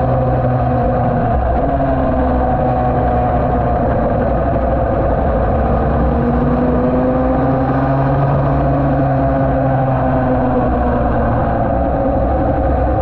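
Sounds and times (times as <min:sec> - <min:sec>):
wind rush: 0:00.0 - 0:13.0.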